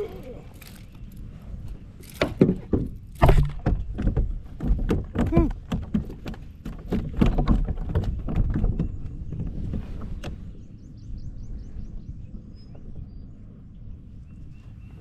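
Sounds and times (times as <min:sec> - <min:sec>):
gear knocking in plastic kayak: 0:02.0 - 0:10.4.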